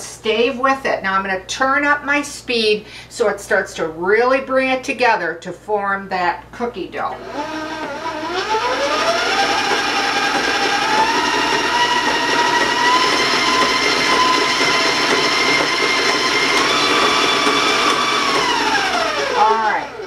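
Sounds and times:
stand mixer motor whining: 0:07.2 - 0:20.0.

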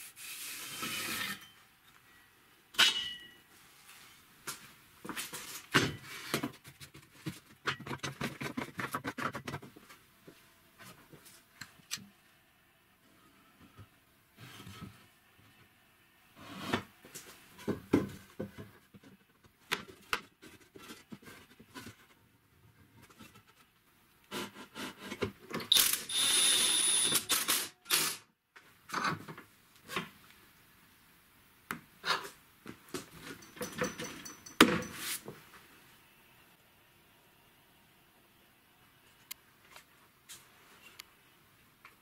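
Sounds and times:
cordless drill running: 0:25.7 - 0:28.0
knocks and clicks of tools: 0:32.9 - 0:35.0.

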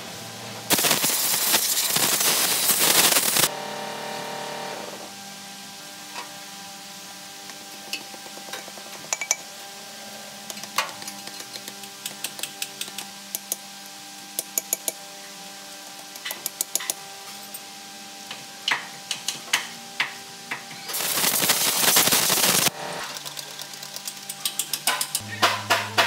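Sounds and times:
compressed air hiss: 0:00.7 - 0:03.5, 0:20.9 - 0:22.8.

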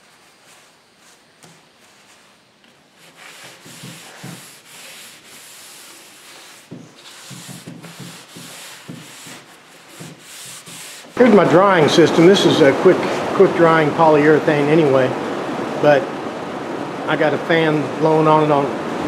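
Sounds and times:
cloth rag rubbing on wood: 0:00.0 - 0:11.4.

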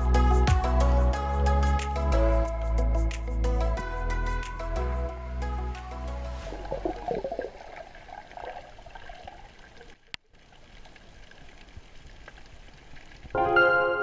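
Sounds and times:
muffled underwater sloshing and bubbling: 0:06.3 - 0:13.3.

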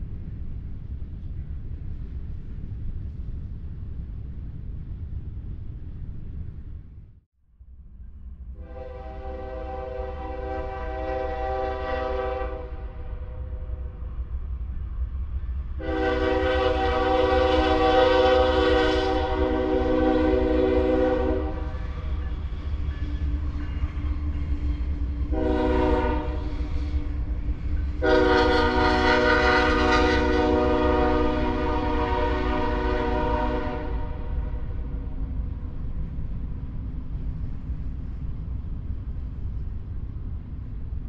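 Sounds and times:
locomotive air horn: 0:08.6 - 0:13.3, 0:15.8 - 0:21.9, 0:25.3 - 0:27.0, 0:28.0 - 0:34.7.

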